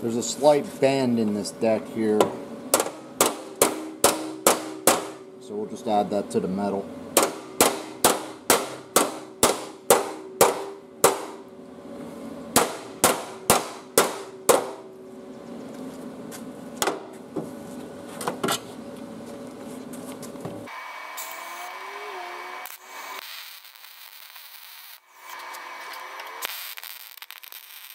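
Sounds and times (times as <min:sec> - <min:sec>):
steady hum: 0:00.0 - 0:27.9
hammer striking metal: 0:02.2 - 0:05.3, 0:07.2 - 0:11.4, 0:12.6 - 0:14.8.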